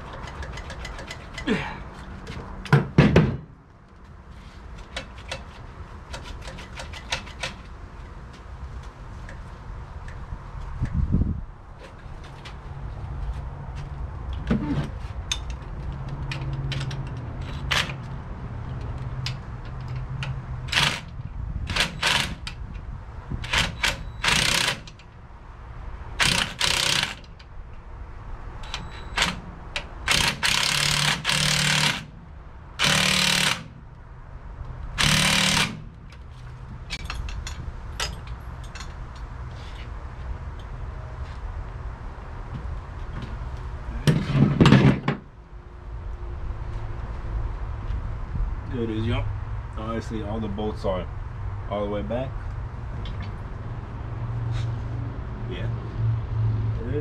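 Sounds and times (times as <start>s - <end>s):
impact wrench hammering bolts: 23.4s - 25.0s, 26.2s - 27.4s, 28.7s - 32.1s, 32.8s - 33.8s, 35.0s - 35.9s.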